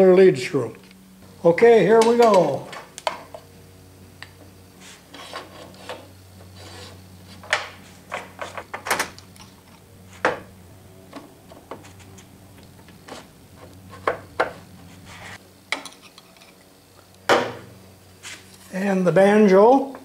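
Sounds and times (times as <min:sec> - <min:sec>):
light metal scraping: 0:04.8 - 0:07.4.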